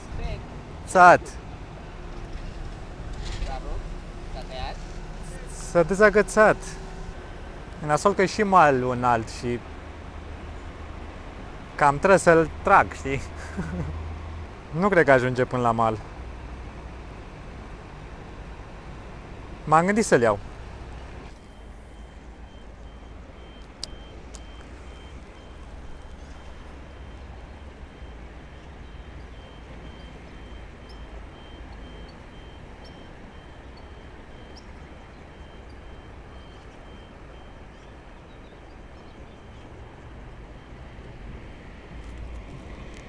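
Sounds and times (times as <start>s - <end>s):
distant traffic rumble: 0.0s - 43.0s
reversing alarm beeping: 4.0s - 9.4s, 19.7s - 41.6s.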